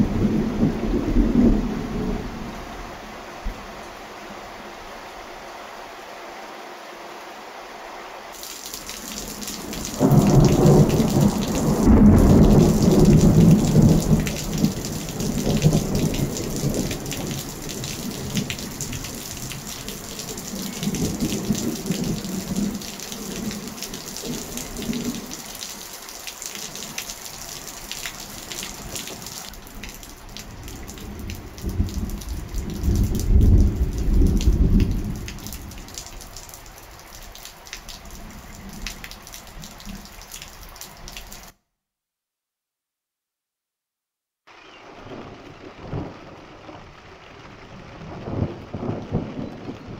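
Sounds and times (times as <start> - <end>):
rolling thunder: 0.0 - 2.7, 9.2 - 25.3, 30.5 - 35.9, 44.8 - 49.9
heavy rain: 0.0 - 41.5, 44.5 - 49.9.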